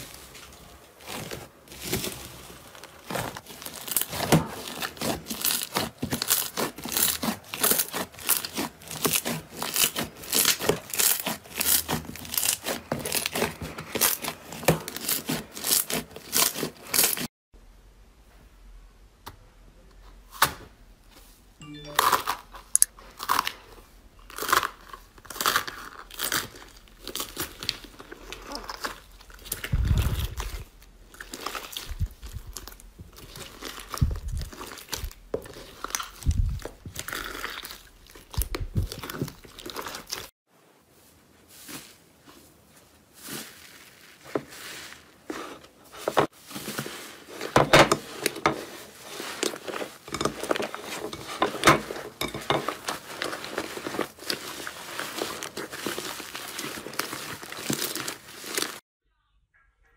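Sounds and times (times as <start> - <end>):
slime crackling and popping: 1.0 - 17.3, 24.2 - 40.3, 51.9 - 58.8.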